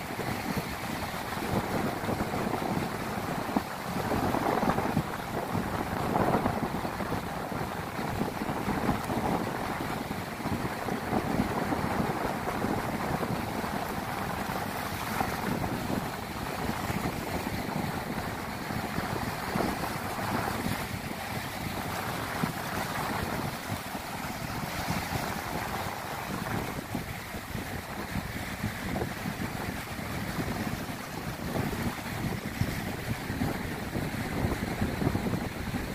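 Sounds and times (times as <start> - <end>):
sea waves breaking on beach: 0.0 - 35.9
wind buffeting microphone: 0.0 - 35.9.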